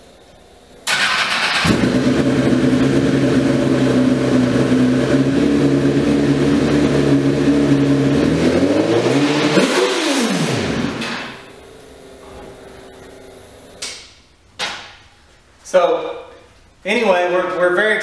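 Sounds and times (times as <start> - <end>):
motorcycle engine running: 1.0 - 13.8.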